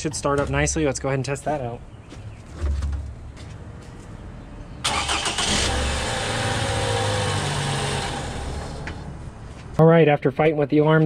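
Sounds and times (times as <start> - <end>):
car engine starting and idling: 4.8 - 9.6.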